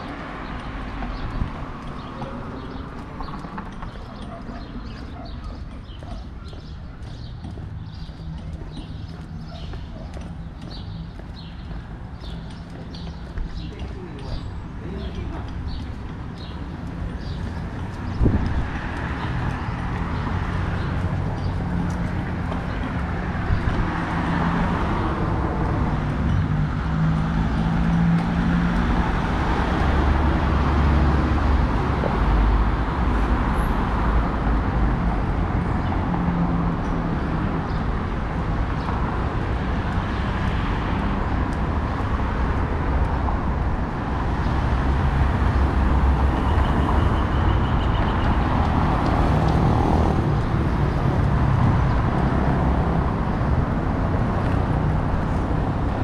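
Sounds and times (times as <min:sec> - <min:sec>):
cars driving past: 0:14.4 - 0:56.0.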